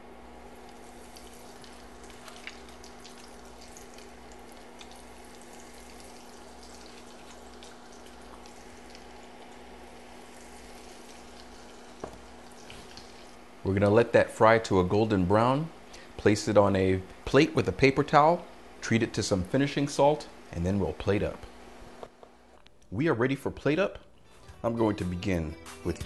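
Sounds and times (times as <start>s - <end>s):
food deep-frying in hot oil: 0.3s - 13.6s.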